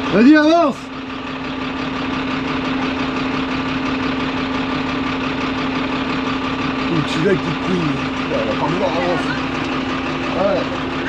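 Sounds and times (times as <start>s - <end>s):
large vehicle engine running: 0.0s - 11.0s.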